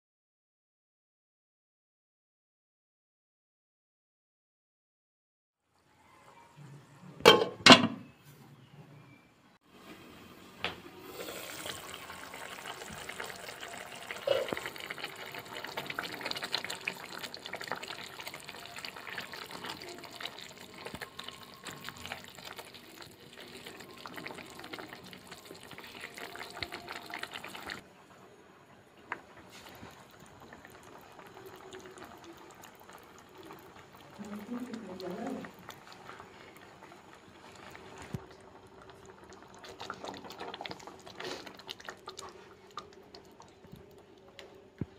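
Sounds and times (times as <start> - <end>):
gravy bubbling in a pan: 10.9 - 27.8, 28.9 - 44.9.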